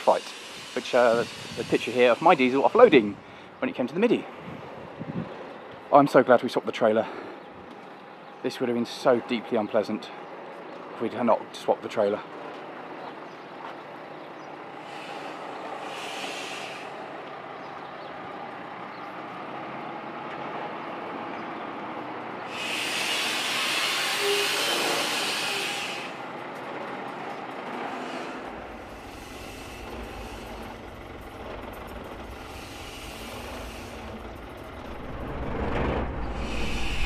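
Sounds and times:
air brakes hissing: 0:00.0 - 0:03.6, 0:14.6 - 0:18.0, 0:22.4 - 0:26.4, 0:27.7 - 0:37.0
diesel engine running: 0:00.0 - 0:06.0, 0:11.8 - 0:37.0
low rumble: 0:28.5 - 0:37.0.

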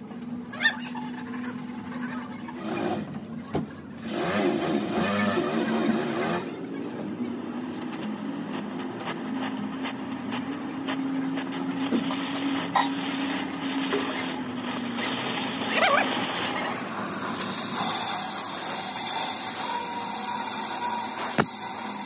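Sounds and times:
cutting torch hissing: 0:09.0 - 0:22.0.

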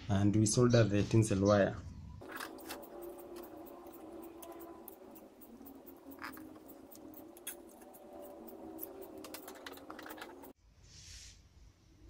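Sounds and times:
low steady hum: 0:02.0 - 0:10.6
soldering iron ticks and scratches: 0:02.2 - 0:10.6.

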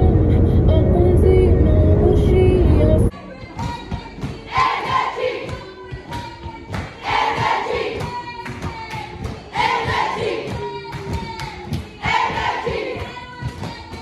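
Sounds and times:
low rhythmic thumps: 0:03.3 - 0:14.0
crowd singing a chant: 0:04.4 - 0:05.8, 0:07.0 - 0:08.3, 0:09.5 - 0:10.8, 0:11.9 - 0:13.5.

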